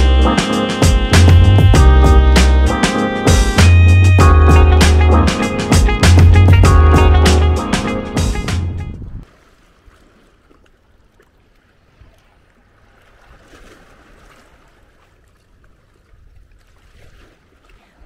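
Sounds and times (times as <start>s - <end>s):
background music: 0.0s - 9.0s
sea water lapping: 9.2s - 18.0s.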